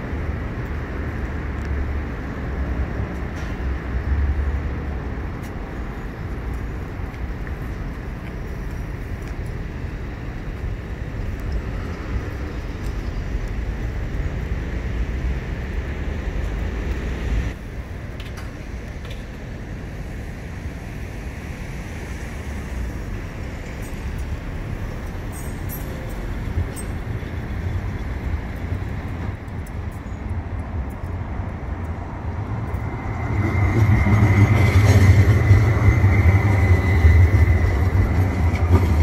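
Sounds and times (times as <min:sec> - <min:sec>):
tram rumbling: 0:00.0 - 0:39.0.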